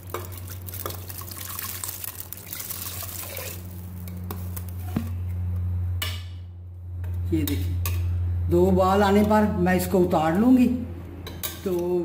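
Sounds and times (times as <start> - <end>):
water pouring and splashing: 0.0 - 4.1
low hum: 0.0 - 11.3.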